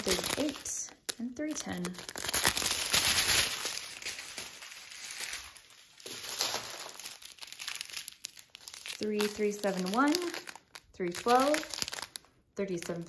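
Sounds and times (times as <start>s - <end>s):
thin plastic crinkling: 0.0s - 13.0s.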